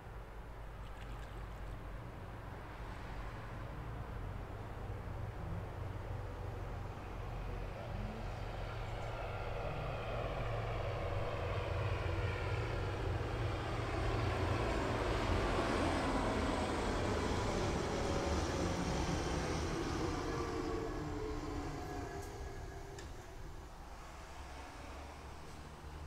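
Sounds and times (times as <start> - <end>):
vehicle passing by: 6.7 - 26.0.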